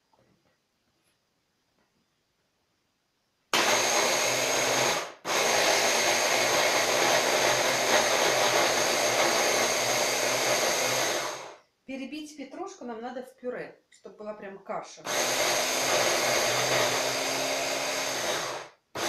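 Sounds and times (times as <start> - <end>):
electric hand blender chopping: 3.6 - 11.6, 15.1 - 19.0.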